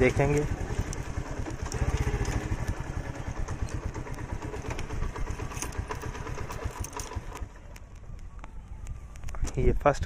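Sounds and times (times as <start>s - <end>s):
small engine running: 0.0s - 7.8s
sharp rattling clicks: 0.0s - 9.5s.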